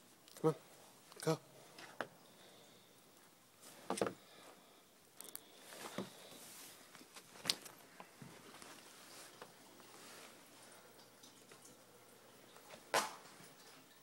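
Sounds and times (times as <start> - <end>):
puppy paws scuffling: 5.7 - 10.4.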